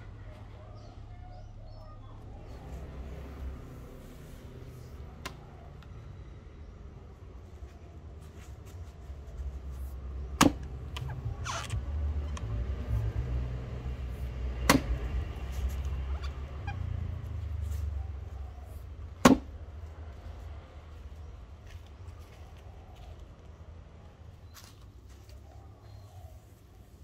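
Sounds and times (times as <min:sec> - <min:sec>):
axe chopping wood: 0:10.3 - 0:11.1, 0:14.5 - 0:15.1, 0:19.2 - 0:19.6.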